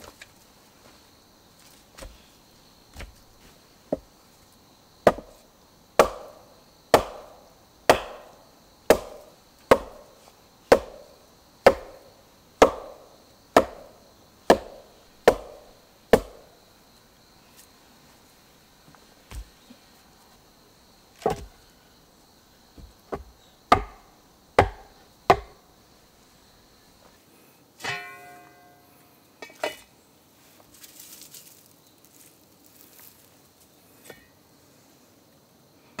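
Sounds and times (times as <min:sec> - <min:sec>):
wooden mallet striking log: 0:05.1 - 0:05.3, 0:06.0 - 0:07.3, 0:07.9 - 0:08.3, 0:08.9 - 0:10.0, 0:10.7 - 0:12.0, 0:12.6 - 0:13.0, 0:13.6 - 0:16.4, 0:21.2 - 0:21.5, 0:22.8 - 0:25.6.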